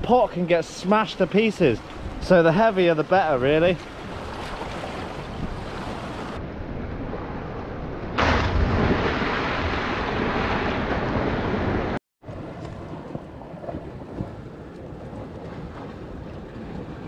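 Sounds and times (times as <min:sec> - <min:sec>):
churning water: 0:00.0 - 0:06.4, 0:08.2 - 0:17.0
wind noise on microphone: 0:03.7 - 0:17.0
heavy object splashing into sea: 0:08.2 - 0:17.0.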